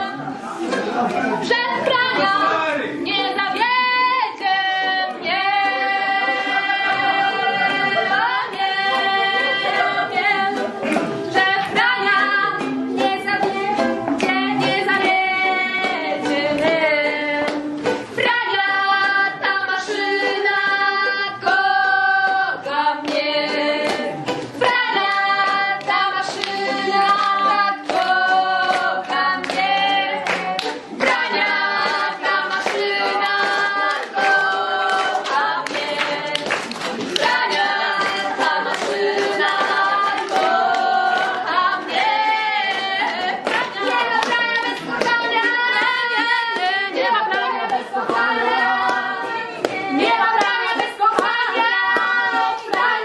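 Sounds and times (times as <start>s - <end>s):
group singing dance song: 0.0s - 53.0s
hand-claps: 10.6s - 15.2s, 17.4s - 18.4s, 23.0s - 53.0s.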